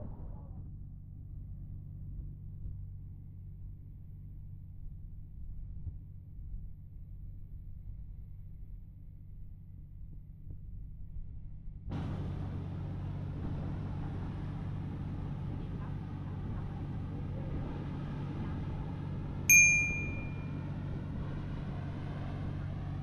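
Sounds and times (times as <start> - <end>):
engine humming: 11.9 - 23.0
steady wide noise: 11.9 - 23.0
bright metallic ding: 19.5 - 20.5.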